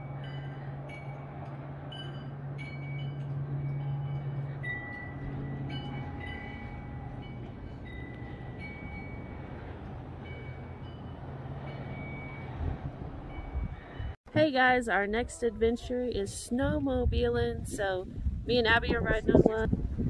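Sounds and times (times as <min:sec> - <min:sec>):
metal wind chime ringing: 0:00.0 - 0:01.3, 0:01.9 - 0:09.6
low rumble of wind: 0:00.0 - 0:20.0.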